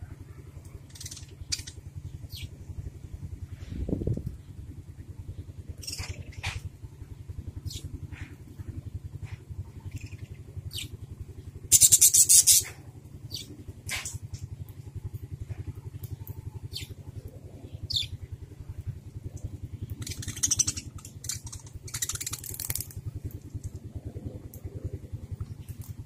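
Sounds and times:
low pulsing hum: 0.0s - 26.0s
budgerigars chirping: 0.9s - 2.5s, 5.8s - 6.6s, 11.7s - 12.7s, 20.0s - 22.4s.

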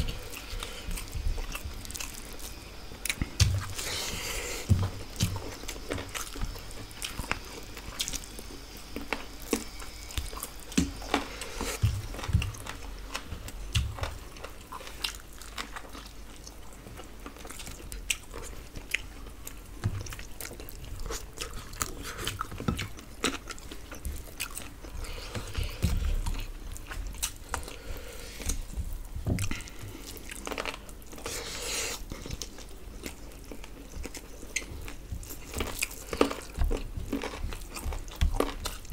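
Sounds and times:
people chewing and biting: 0.0s - 38.9s
soft low thumps: 11.8s - 12.8s.

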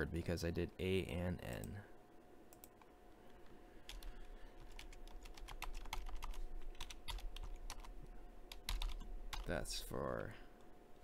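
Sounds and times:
computer keyboard typing: 3.9s - 9.5s.

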